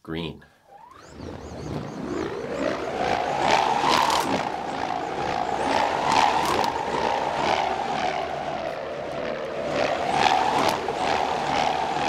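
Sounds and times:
rubber bands buzzing drone: 0.7 - 12.0.

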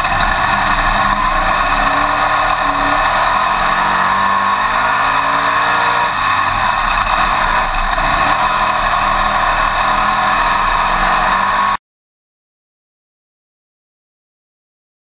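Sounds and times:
heavy wind noise: 0.0 - 5.2
race car engine running hard: 0.0 - 11.8.

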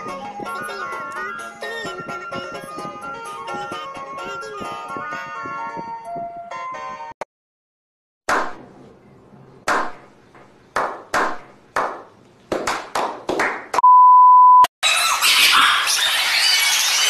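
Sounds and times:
steady high beep: 13.8 - 14.7.

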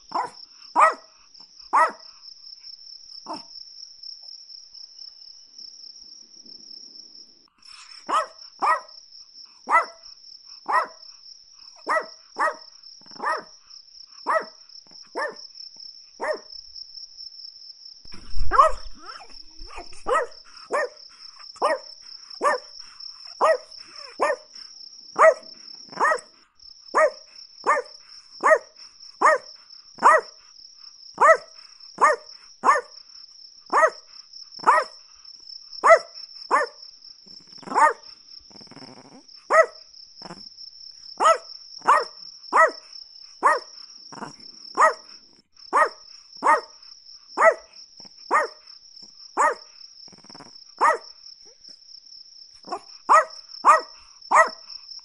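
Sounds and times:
small dog yapping: 0.1 - 1.0, 1.7 - 2.0, 3.3 - 3.5, 8.0 - 8.9, 9.7 - 10.0, 10.7 - 11.0, 11.8 - 13.5, 14.3 - 15.4, 16.2 - 16.5, 18.2 - 21.0, 21.6 - 22.7, 23.3 - 24.6, 25.2 - 26.3, 27.0 - 30.3, 31.2 - 32.9, 33.7 - 34.0, 34.6 - 35.0, 35.8 - 36.8, 37.6 - 38.0, 38.7 - 40.4, 41.2 - 42.8, 43.4 - 45.1, 45.7 - 46.8, 47.4 - 47.7, 48.3 - 48.7, 49.4 - 51.0, 52.6 - 54.6
low thump: 18.1 - 20.3.

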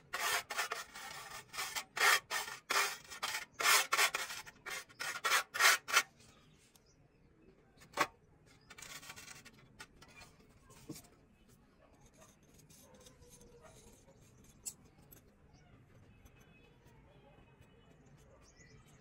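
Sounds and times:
tool scraping plaster: 0.0 - 6.2.

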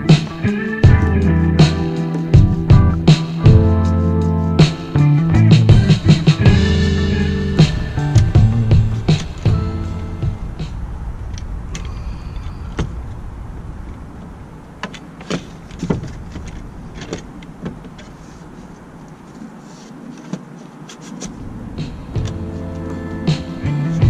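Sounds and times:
low background noise: 6.1 - 24.0.

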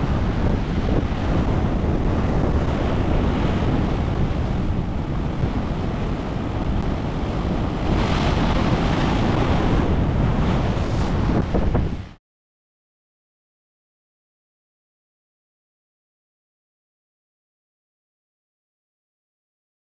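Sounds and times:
ocean surf breaking: 0.0 - 12.2
wind buffeting microphone: 0.0 - 12.2.

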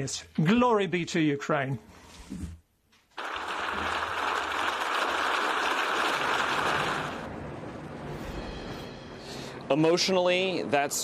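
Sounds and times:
large crowd applauding: 3.1 - 7.3.

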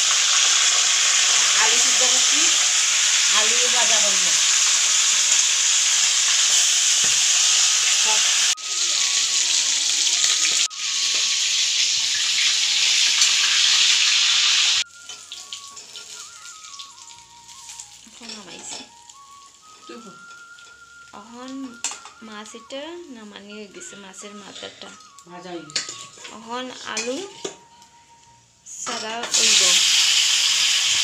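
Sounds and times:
fish frying in hot oil: 0.0 - 21.2, 29.3 - 31.0.

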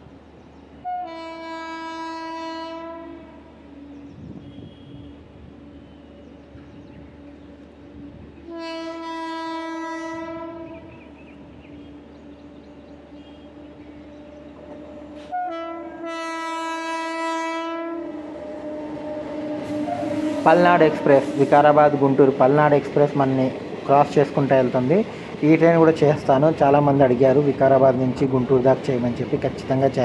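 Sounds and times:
passenger train running: 0.0 - 30.0
locomotive horn blasts: 0.8 - 3.5, 4.4 - 5.2, 8.4 - 11.0, 14.7 - 21.6.

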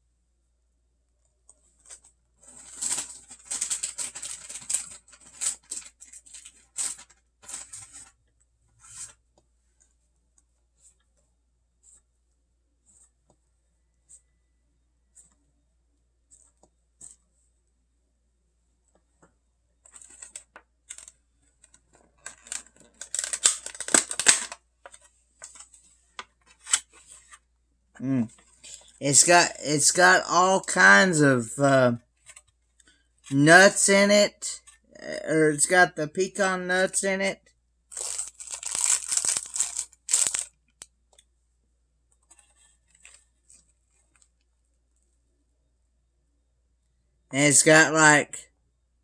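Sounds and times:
plastic packaging crinkling: 1.8 - 8.2, 19.9 - 25.7, 37.9 - 40.8.

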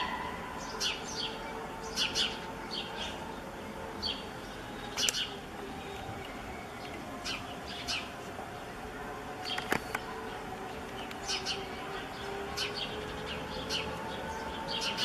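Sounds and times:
sparrow chirping: 4.0 - 8.7, 9.4 - 15.0.

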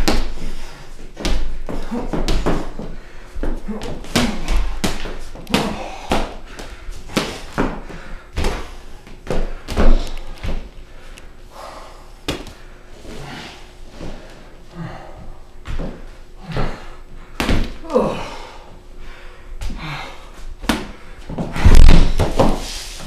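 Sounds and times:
heavy thuds: 20.7 - 22.6.

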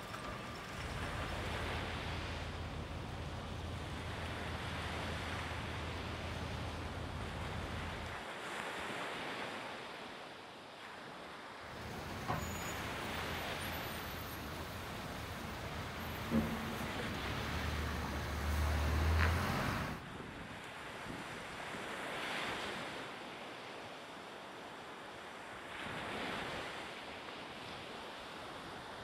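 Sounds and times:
low engine hum: 0.0 - 8.2, 11.7 - 20.0
water washing: 0.0 - 8.2, 11.7 - 20.0
wind: 0.0 - 29.0
short knocks: 14.2 - 19.9.

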